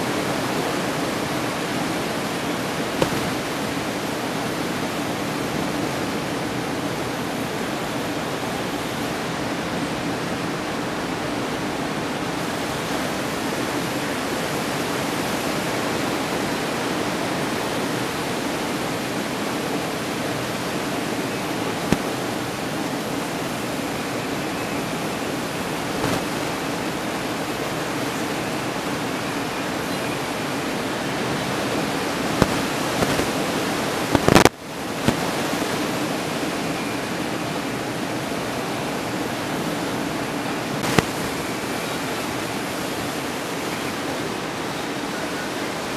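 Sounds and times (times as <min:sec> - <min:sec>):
ocean surf roaring: 0:00.0 - 0:45.9
sharp knock: 0:03.0 - 0:03.4.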